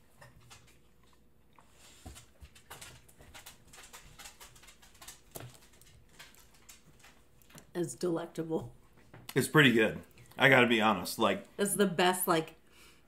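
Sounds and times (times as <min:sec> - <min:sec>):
person chewing: 0:00.4 - 0:07.7.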